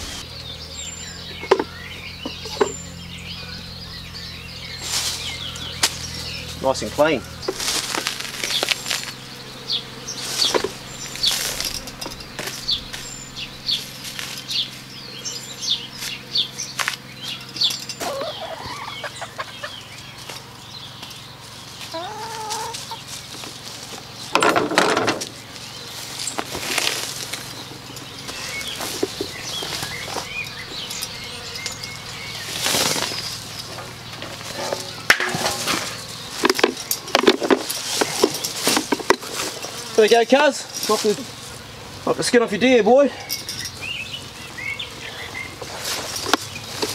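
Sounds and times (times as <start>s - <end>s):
chickens clucking: 0.0s - 46.9s
small birds chirping: 0.0s - 46.9s
hide ripping off carcass: 7.4s - 9.2s.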